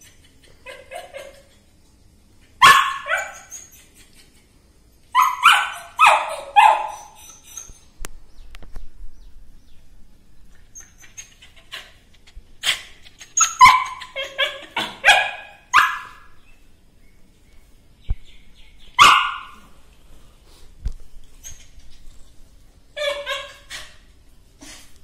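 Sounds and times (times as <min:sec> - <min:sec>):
small dog barking: 0:02.6 - 0:03.4, 0:05.2 - 0:07.0, 0:13.6 - 0:16.3, 0:19.0 - 0:19.6.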